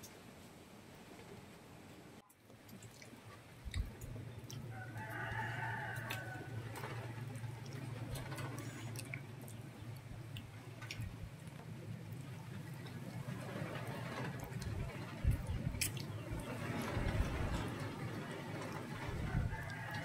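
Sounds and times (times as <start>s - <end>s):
steady low hum: 2.9s - 20.0s
rooster crowing: 4.7s - 7.1s, 19.2s - 20.0s.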